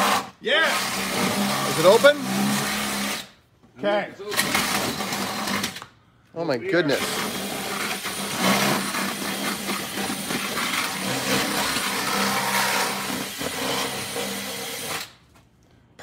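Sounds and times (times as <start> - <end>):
drill bit grinding metal: 0.0 - 3.3, 6.9 - 15.1
cordless drill motor: 7.0 - 15.1.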